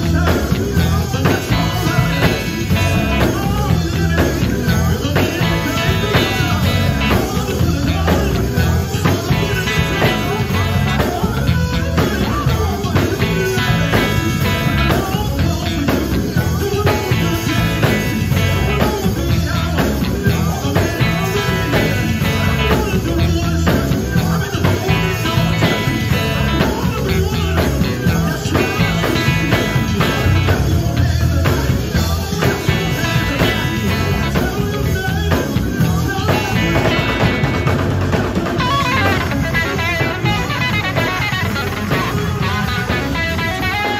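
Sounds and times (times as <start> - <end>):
bass guitar: 0.0 - 43.9
drum kit beat: 0.0 - 43.9
electric guitar: 0.0 - 43.9
person singing into microphone: 0.0 - 43.9.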